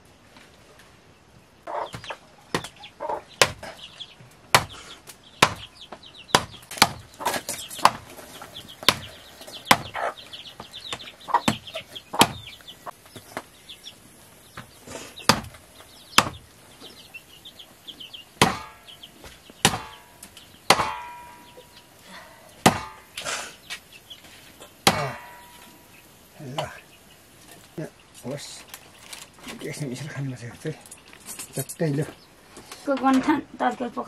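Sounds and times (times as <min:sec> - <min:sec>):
chickens clucking: 0:01.4 - 0:34.0
blade chopping on wooden block: 0:03.4 - 0:03.7, 0:04.5 - 0:04.8, 0:05.4 - 0:05.7, 0:06.3 - 0:08.0, 0:08.8 - 0:09.1, 0:10.9 - 0:12.5, 0:15.3 - 0:15.6, 0:18.4 - 0:19.0, 0:19.6 - 0:20.1, 0:20.7 - 0:21.6, 0:22.6 - 0:23.1, 0:24.8 - 0:25.6.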